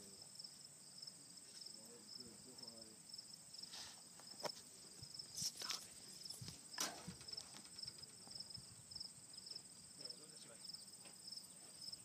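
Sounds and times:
insects chirping: 0.0s - 12.0s
rustling: 3.6s - 8.6s.

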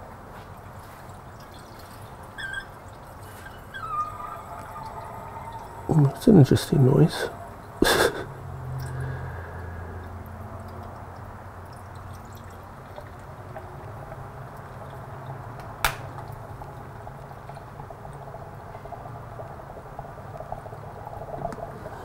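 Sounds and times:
water gurgling and bubbling: 1.8s - 8.0s.

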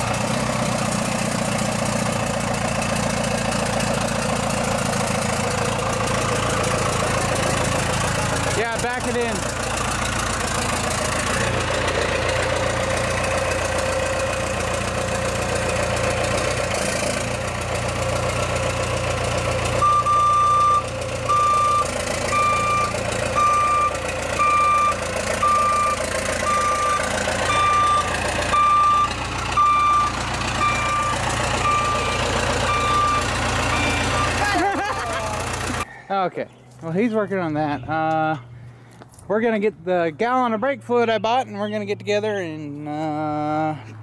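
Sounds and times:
diesel engine running: 0.0s - 35.9s, 36.6s - 44.0s
backup alarm beeping: 19.8s - 34.4s.

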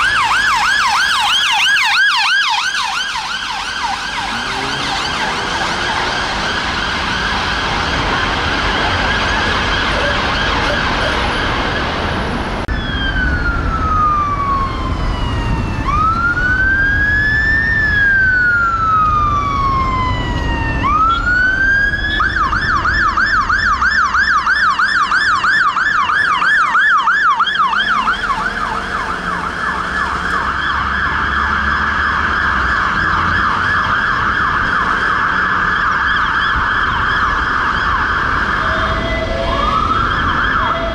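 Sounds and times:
emergency vehicle sirens: 0.0s - 40.9s
fire engine siren: 0.0s - 40.9s
traffic and engine rumble: 0.0s - 40.9s.

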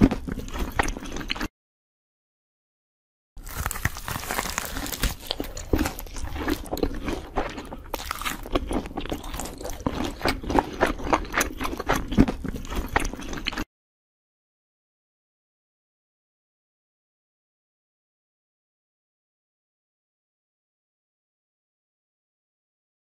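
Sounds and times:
person chewing crunchy food: 0.0s - 1.5s, 3.4s - 13.7s.

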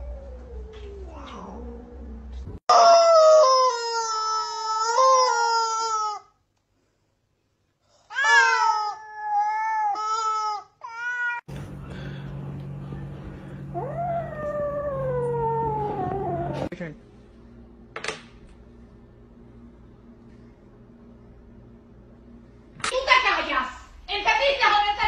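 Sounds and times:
low hum: 11.5s - 24.1s.

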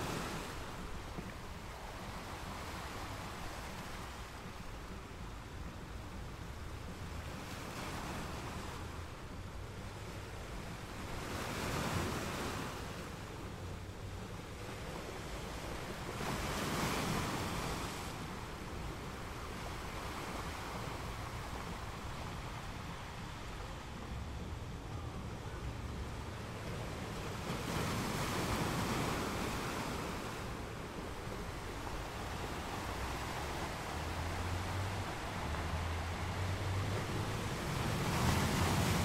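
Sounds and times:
steady rushing noise: 18.0s - 39.0s.

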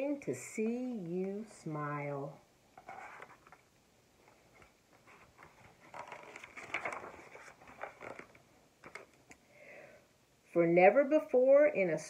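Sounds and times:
book page turning: 2.8s - 9.4s.

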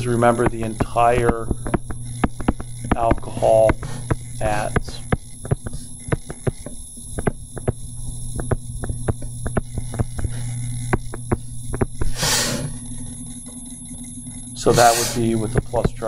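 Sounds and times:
low electrical hum: 0.0s - 16.0s
stylus tapping on screen: 0.1s - 12.2s
short hiss: 14.7s - 15.2s.

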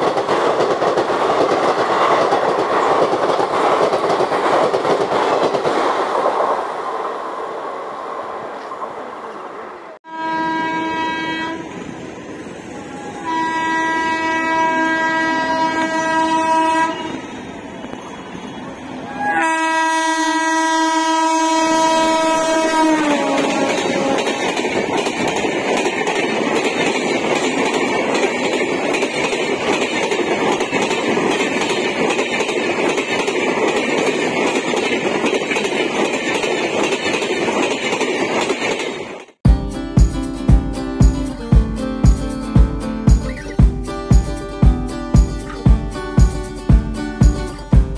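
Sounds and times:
train wheels clickety-clack: 0.0s - 6.7s, 22.5s - 47.9s
train horn blasts: 10.0s - 11.8s, 12.8s - 17.3s, 19.1s - 24.4s.

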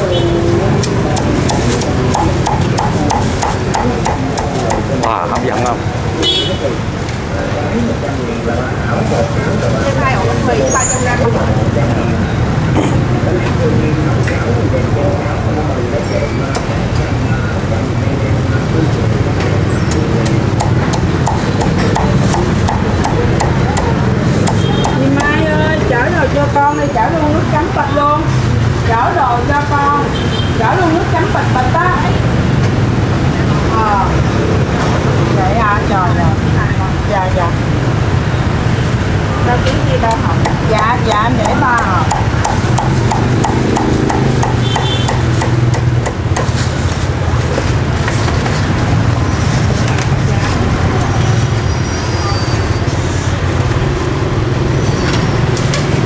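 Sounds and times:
street traffic rumble: 0.0s - 56.0s
cleaver chopping on wooden block: 1.2s - 5.6s, 19.9s - 25.3s, 40.1s - 46.6s.

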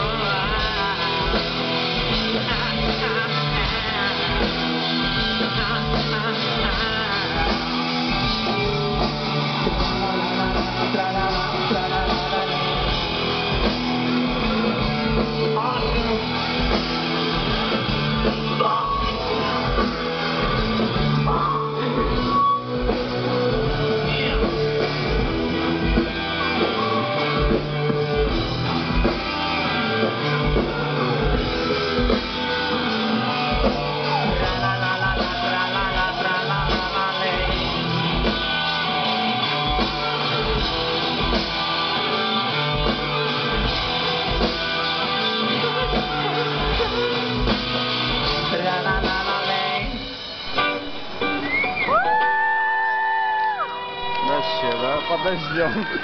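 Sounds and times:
man singing: 0.0s - 28.4s, 29.7s - 41.4s, 42.8s - 50.6s
live rock band: 0.0s - 56.0s.

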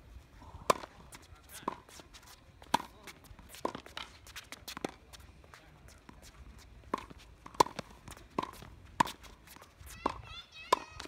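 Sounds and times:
tennis ball bouncing on court: 0.6s - 11.0s
tennis ball hit off racket: 6.9s - 11.0s.

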